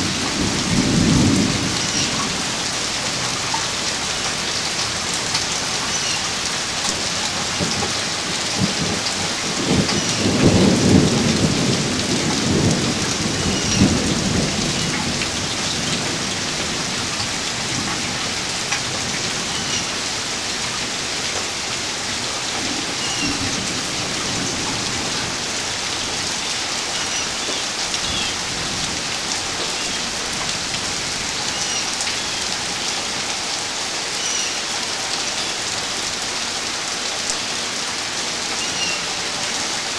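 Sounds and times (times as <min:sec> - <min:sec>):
rolling thunder: 0:00.0 - 0:02.9, 0:07.5 - 0:19.6
steady rain: 0:00.0 - 0:39.9.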